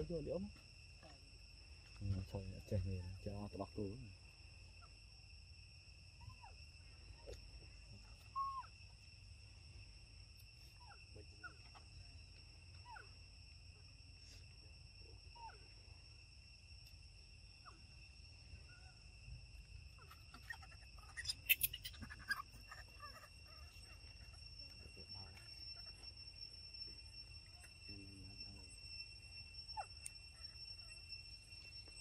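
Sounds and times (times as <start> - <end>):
insect drone: 0.0 - 32.0
short falling squeaky calls: 19.9 - 26.4.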